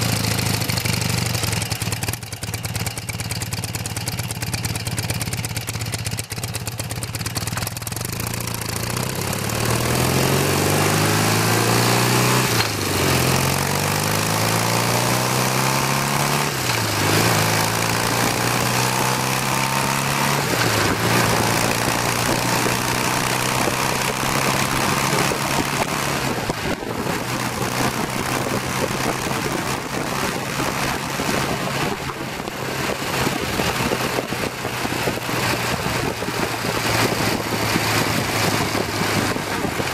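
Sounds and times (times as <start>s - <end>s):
motorcycle engine accelerating: 0.0s - 39.9s
wind rush on microphone: 16.4s - 39.9s.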